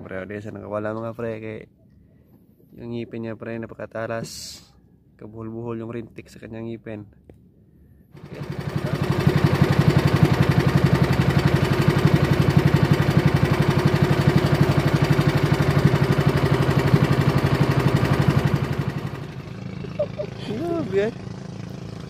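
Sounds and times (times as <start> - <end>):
small boat engine running: 8.0 - 22.0.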